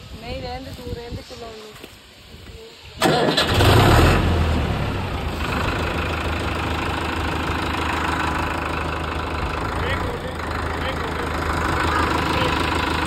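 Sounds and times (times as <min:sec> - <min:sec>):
diesel tractor engine starting: 0:03.0 - 0:13.0.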